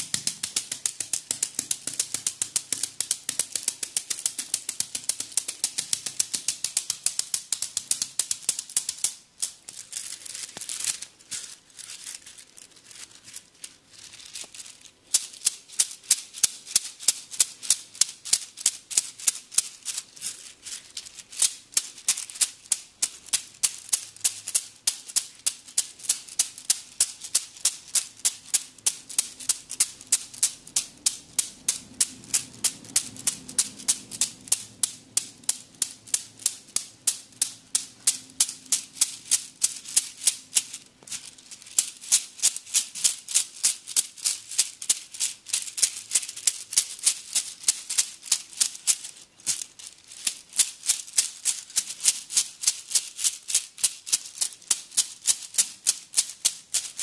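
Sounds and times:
bamboo sticks tapping on body: 0:00.0 - 0:09.2.

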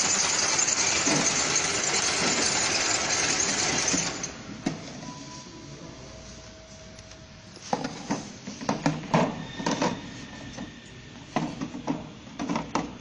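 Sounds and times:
labeling machine humming: 0:00.0 - 0:05.0.

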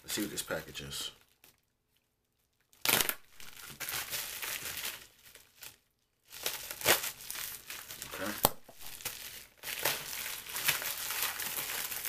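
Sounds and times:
envelope tearing and crinkling: 0:02.7 - 0:12.0.

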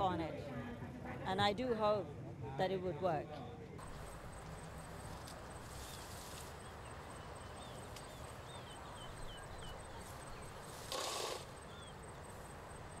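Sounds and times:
background hiss: 0:03.8 - 0:13.0.

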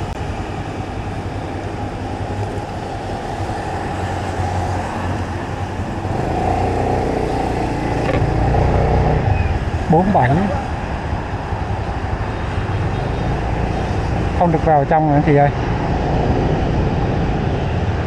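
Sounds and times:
vehicle engines running: 0:00.0 - 0:17.7
tyre and road noise: 0:00.0 - 0:18.0.

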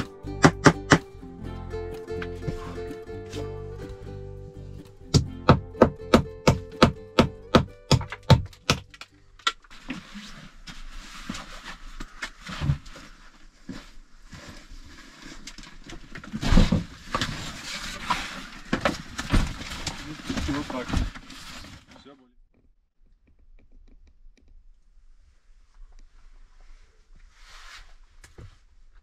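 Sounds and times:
hammer driving nails into boards: 0:05.1 - 0:08.9
rustling of nylon sacks: 0:09.7 - 0:22.0.

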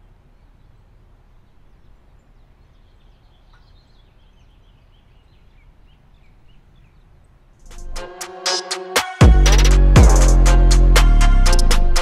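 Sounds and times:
birds chirping: 0:00.0 - 0:08.0.

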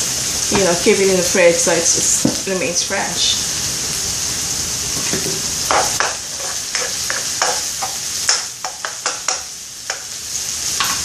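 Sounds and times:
onions sizzling in oil: 0:00.0 - 0:11.0
spoon scraping a pan: 0:05.0 - 0:11.0.

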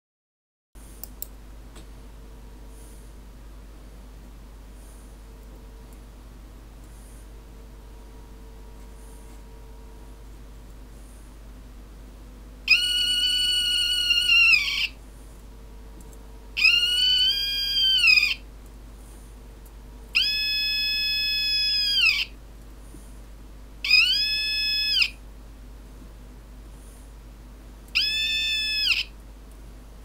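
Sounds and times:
high whistling meter squeal: 0:12.7 - 0:15.0, 0:16.6 - 0:18.4, 0:20.2 - 0:22.3, 0:23.9 - 0:25.2, 0:28.0 - 0:29.1.

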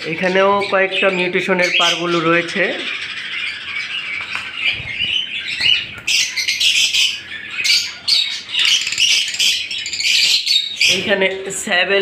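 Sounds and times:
lovebirds chattering and squawking: 0:00.0 - 0:12.0.

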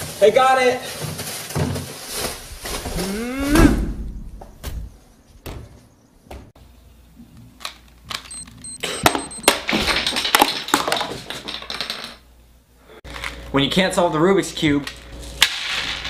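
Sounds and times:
plastic bag rustling: 0:00.0 - 0:03.2.

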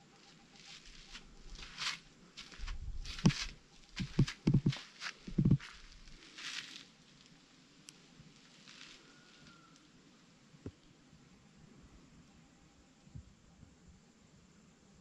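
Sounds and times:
footsteps scuffing on dirt path: 0:00.6 - 0:06.8
heavier footstep thumps: 0:02.6 - 0:05.8.

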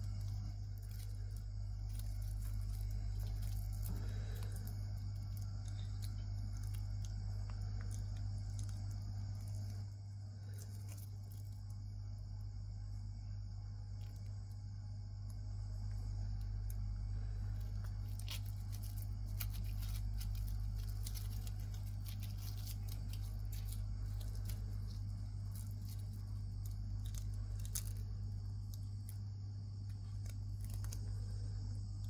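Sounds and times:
monkey chewing crisp crunches: 0:00.0 - 0:11.7, 0:17.5 - 0:28.1
steady low hum: 0:00.0 - 0:32.0.

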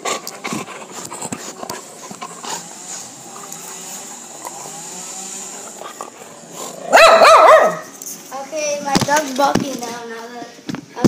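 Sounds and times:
mechanical motor drone: 0:00.5 - 0:07.0.

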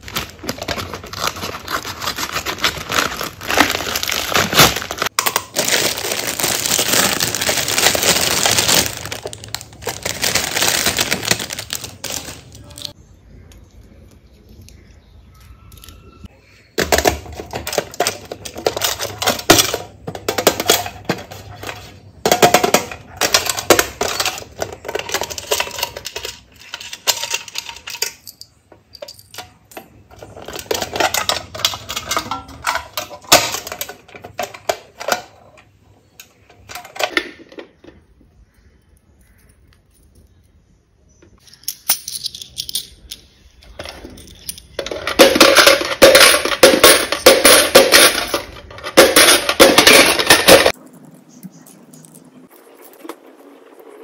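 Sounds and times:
coins dropping into coin bank: 0:41.4 - 0:50.8
coins clinking: 0:41.4 - 0:53.0.

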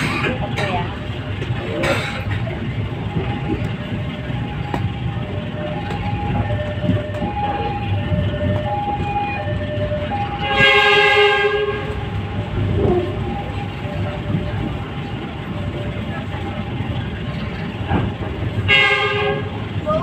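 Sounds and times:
train rumbling: 0:00.0 - 0:20.0
two-tone crossing alarm: 0:03.2 - 0:14.4
train horn: 0:10.2 - 0:12.1, 0:18.6 - 0:19.6.

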